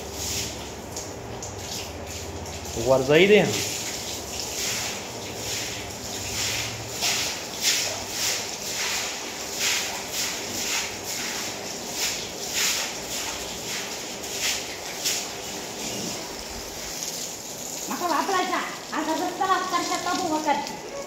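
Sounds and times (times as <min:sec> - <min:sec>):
broom sweeping wet stone floor: 0:00.0 - 0:01.0, 0:03.4 - 0:21.0.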